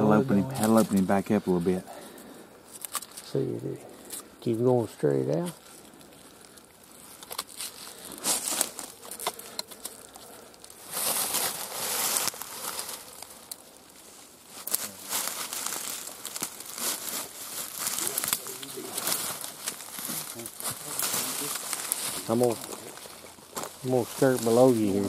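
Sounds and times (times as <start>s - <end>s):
brush rustling: 0.0s - 25.0s
footsteps crunching through dry leaves: 5.0s - 25.0s.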